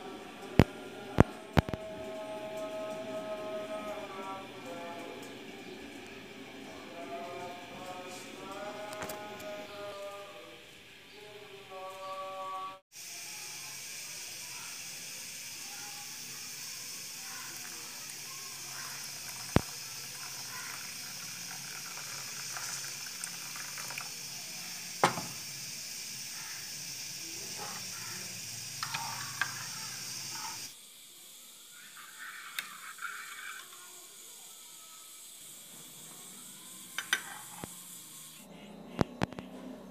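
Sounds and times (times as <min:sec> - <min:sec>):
water pouring into a bowl: 0:13.1 - 0:30.7.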